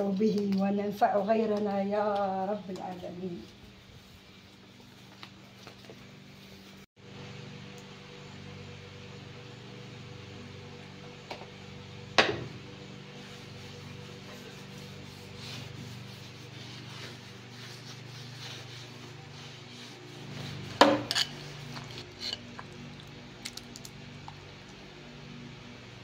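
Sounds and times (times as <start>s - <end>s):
low steady hum: 0.0s - 26.0s
cloth rubbing on steel griddle: 13.1s - 22.4s.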